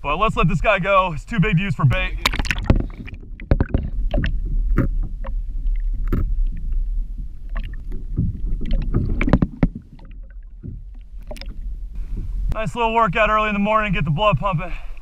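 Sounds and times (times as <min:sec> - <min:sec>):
water splashing: 0:00.0 - 0:14.7
steady low rumble: 0:00.0 - 0:15.0
knocks and clicks on kayak: 0:01.9 - 0:05.4, 0:07.5 - 0:11.6.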